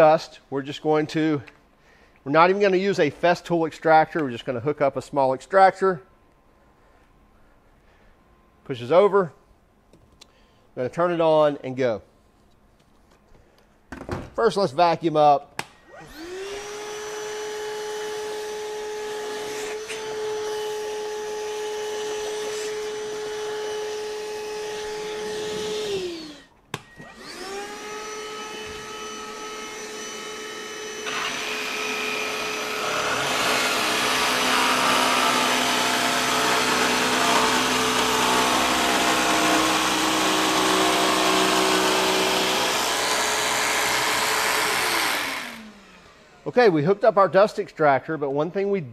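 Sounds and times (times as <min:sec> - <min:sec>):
jigsaw cutting plywood: 0:15.9 - 0:46.4
dust extractor motor whining: 0:15.9 - 0:47.0.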